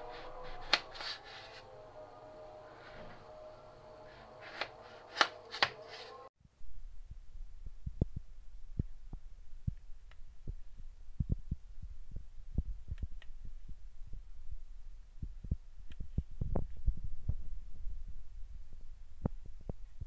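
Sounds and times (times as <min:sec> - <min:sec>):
knife cutting potato on plate: 0:00.4 - 0:01.2, 0:04.4 - 0:06.1
low steady hum: 0:06.2 - 0:20.0.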